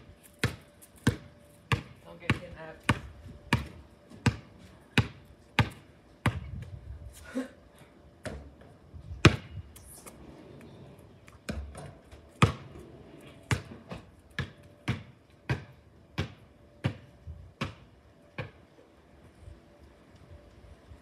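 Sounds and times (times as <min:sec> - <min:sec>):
basketball bouncing on concrete: 0:00.4 - 0:06.6, 0:08.2 - 0:09.5, 0:11.5 - 0:12.7, 0:13.4 - 0:18.6.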